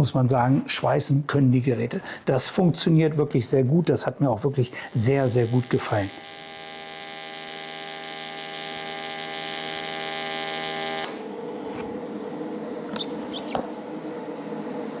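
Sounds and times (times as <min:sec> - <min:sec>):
welding arc buzzing: 0:04.7 - 0:11.3.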